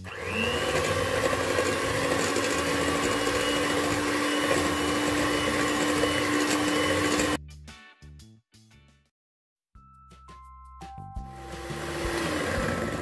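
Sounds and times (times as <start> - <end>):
electric hand mixer whisking cream: 0.0 - 7.4, 11.4 - 13.0.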